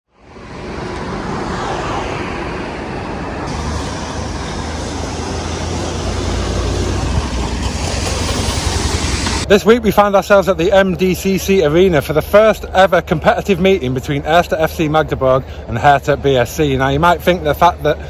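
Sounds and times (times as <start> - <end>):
cars driving past: 0.1 - 10.9
low engine rumble: 0.3 - 15.7.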